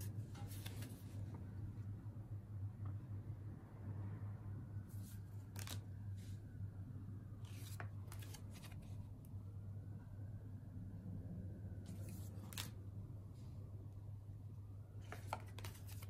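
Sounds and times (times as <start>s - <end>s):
cards swishing and tapping: 0.0s - 1.2s, 5.0s - 5.8s, 15.0s - 16.0s
low steady hum: 0.0s - 16.0s.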